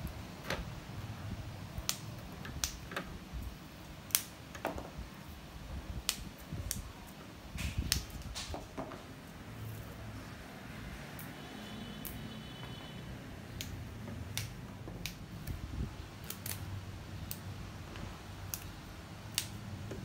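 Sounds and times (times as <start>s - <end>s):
plant stems snapping: 1.8s - 2.8s, 4.1s - 4.3s, 6.0s - 6.9s, 7.5s - 8.5s, 13.5s - 17.5s, 18.4s - 19.7s.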